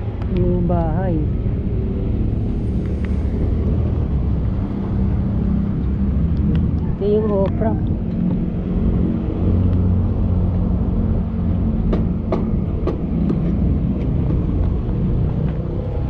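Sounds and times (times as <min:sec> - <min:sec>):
low engine rumble: 0:00.0 - 0:16.0
sharp knocks: 0:11.9 - 0:13.6.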